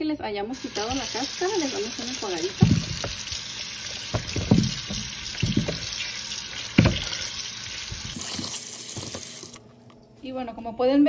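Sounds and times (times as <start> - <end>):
tap water running into bowl: 0.6 - 9.6
potatoes knocking: 0.7 - 8.3.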